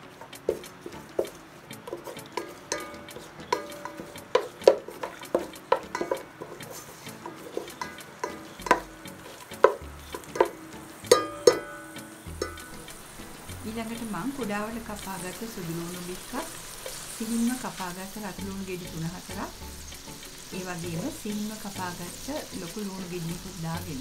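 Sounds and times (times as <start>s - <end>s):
wooden spoon knocking metal pot: 0.0s - 17.1s
faint frying sizzle: 0.0s - 24.0s.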